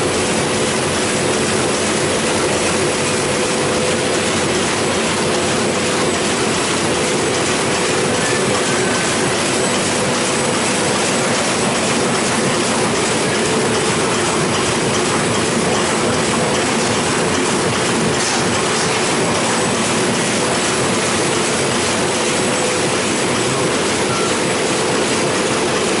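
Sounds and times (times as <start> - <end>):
printing press clattering: 0.0 - 26.0.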